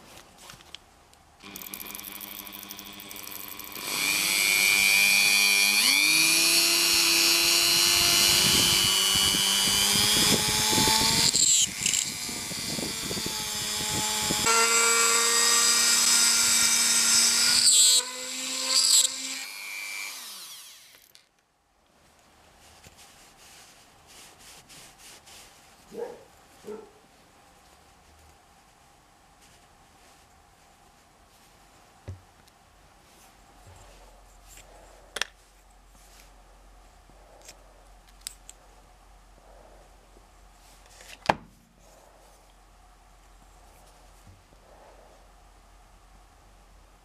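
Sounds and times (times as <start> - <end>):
rotary tool drilling wood: 1.4 - 21.2.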